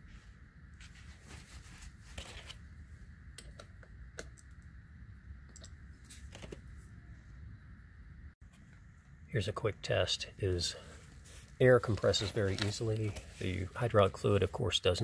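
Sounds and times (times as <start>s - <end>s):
low background hum: 0.0s - 15.0s
paper towel rustling: 11.0s - 14.0s.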